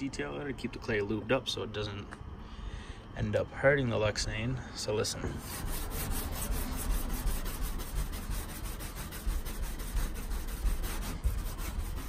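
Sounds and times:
clay bar rubbing on wet plastic: 5.4s - 12.0s.

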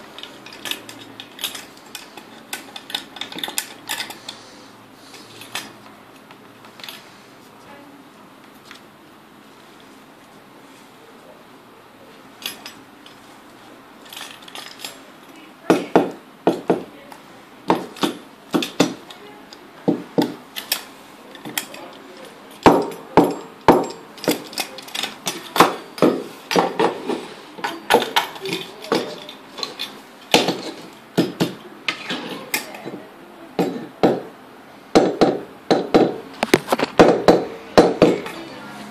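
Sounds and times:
metallic clicks and rattles: 0.1s - 4.4s, 14.0s - 15.1s.

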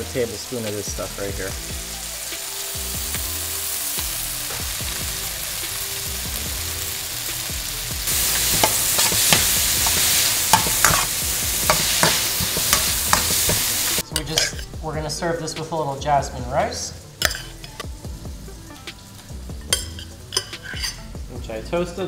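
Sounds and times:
vegetables sizzling in a wok: 0.0s - 14.7s, 16.5s - 21.3s
metal spatula scraping a wok: 8.1s - 14.7s, 19.7s - 21.1s.

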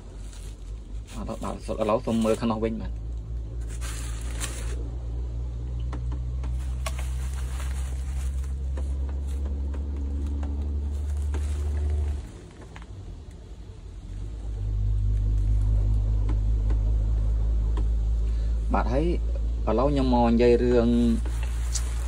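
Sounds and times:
bubble wrap and cardboard rustling: 0.0s - 2.8s, 3.5s - 5.0s, 6.5s - 13.0s, 20.9s - 22.0s.

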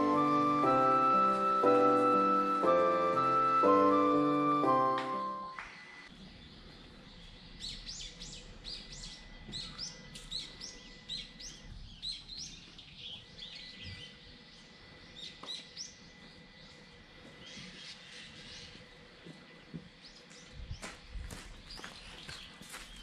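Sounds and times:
small songbirds chirping: 6.1s - 23.0s.

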